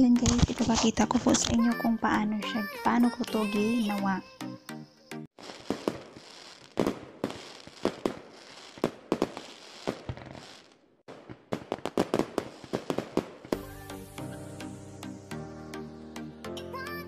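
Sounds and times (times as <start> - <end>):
fireworks bangs: 5.4 - 13.8
fireworks crackling hiss: 5.4 - 14.3.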